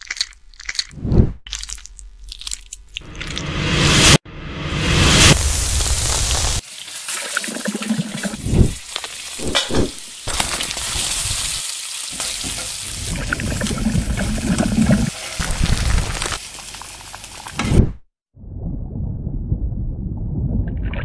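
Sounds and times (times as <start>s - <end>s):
food sizzling in a pot: 5.2s - 13.2s, 15.1s - 17.6s.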